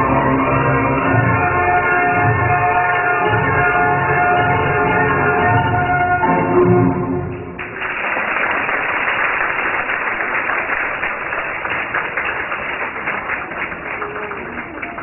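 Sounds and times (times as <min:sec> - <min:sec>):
ballet music: 0:00.0 - 0:07.7
audience applauding: 0:07.6 - 0:15.0.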